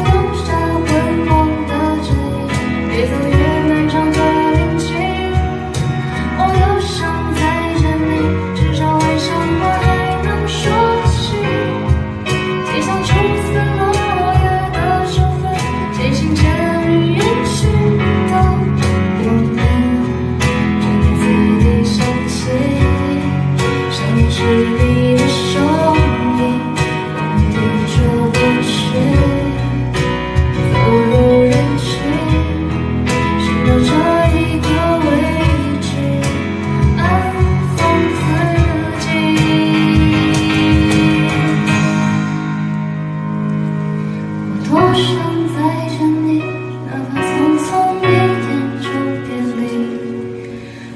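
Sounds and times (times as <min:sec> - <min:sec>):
woman singing: 0:00.0 - 0:42.3, 0:44.6 - 0:50.6
acoustic guitar: 0:00.0 - 0:50.9
bass: 0:00.0 - 0:50.9
keyboard: 0:00.0 - 0:50.9.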